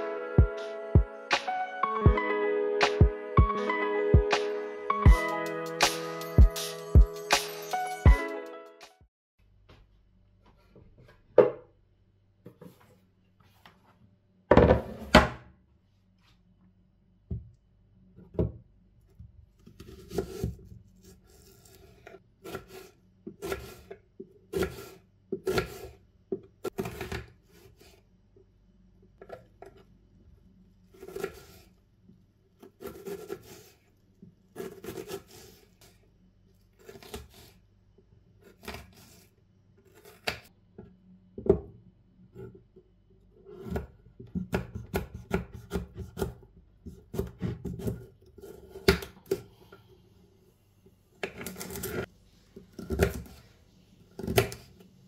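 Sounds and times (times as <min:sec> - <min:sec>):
knife cutting onion on wooden board: 0:19.6 - 0:26.0, 0:26.6 - 0:28.0, 0:30.9 - 0:31.7, 0:32.6 - 0:33.9, 0:34.6 - 0:36.0, 0:36.8 - 0:37.6, 0:38.4 - 0:40.5, 0:43.5 - 0:49.5, 0:51.2 - 0:53.6, 0:54.2 - 0:54.8.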